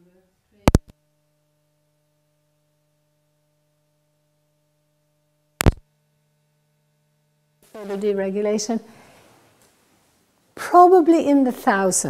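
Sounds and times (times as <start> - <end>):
faint steady hum: 0.0 - 12.0
sharp click: 5.6 - 5.8.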